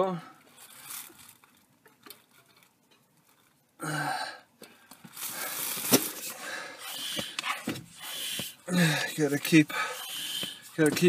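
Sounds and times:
hand pump air hissing: 6.8 - 10.9.

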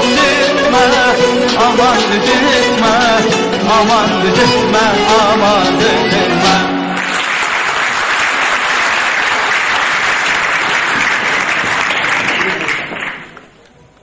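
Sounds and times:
crowd applauding: 6.8 - 14.0.

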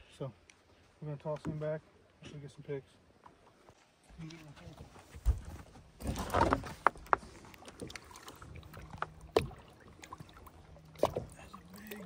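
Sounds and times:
water splash and slosh: 3.3 - 12.0.

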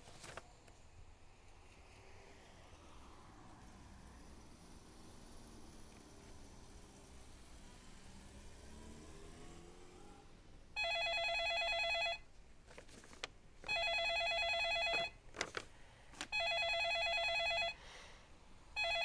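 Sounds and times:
telephone warbling ring: 10.8 - 12.2, 13.7 - 15.2, 16.3 - 17.8, 18.8 - 19.0
light handling sounds: 12.6 - 13.4, 15.3 - 16.4.

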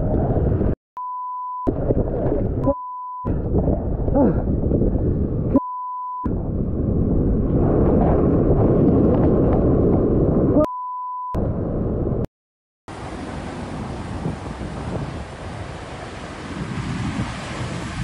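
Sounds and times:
censor bleep: 1.0 - 1.7, 2.6 - 3.3, 5.5 - 6.3, 10.6 - 11.4
wind on microphone: 3.3 - 5.6, 6.3 - 10.6, 13.0 - 18.0
surf breaking over rocks: 12.9 - 18.0.

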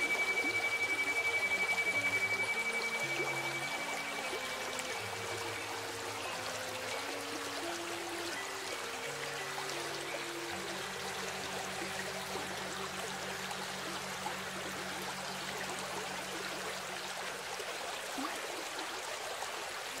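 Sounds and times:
low gong tones: 0.0 - 7.0
river babbling over stones: 0.0 - 20.0.

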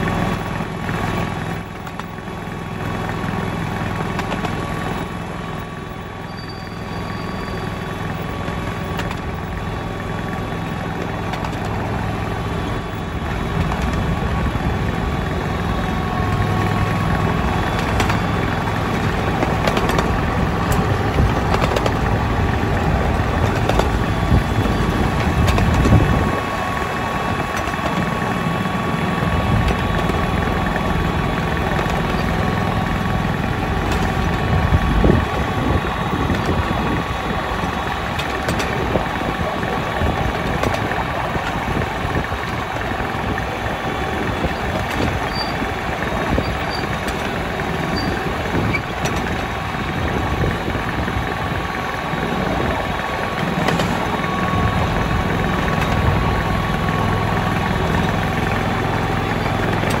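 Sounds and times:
small petrol engine running: 0.0 - 60.0
running gear clicks on track: 11.0 - 11.7, 17.7 - 18.3, 19.3 - 22.1, 23.4 - 24.4, 27.6 - 28.1, 37.6 - 38.9, 40.4 - 41.6, 53.4 - 54.2.

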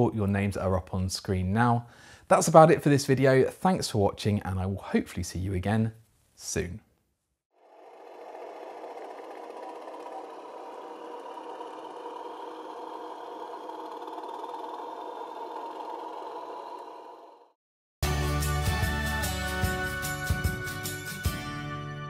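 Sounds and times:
model locomotive running hum: 7.6 - 17.5.

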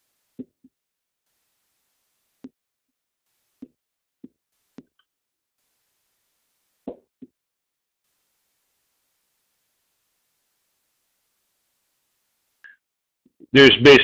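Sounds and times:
marker tapping on whiteboard: 6.8 - 7.4.

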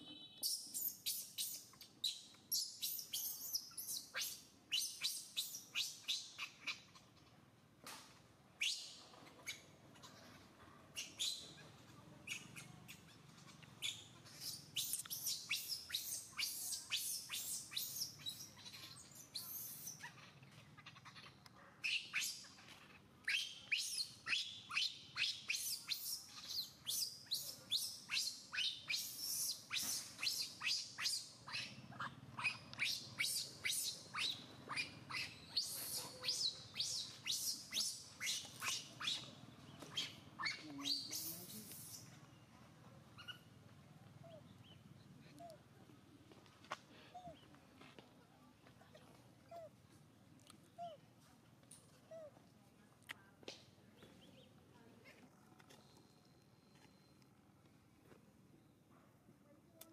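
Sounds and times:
infant monkey shrieking: 13.8 - 39.2, 39.9 - 42.0.

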